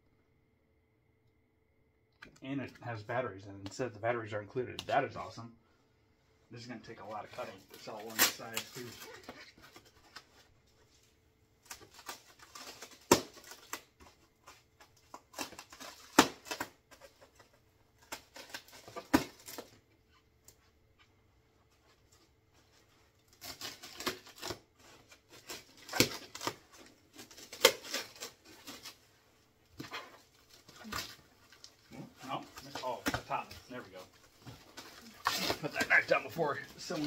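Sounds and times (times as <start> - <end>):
knife cutting through wrapping: 23.3 - 29.0, 34.7 - 37.0.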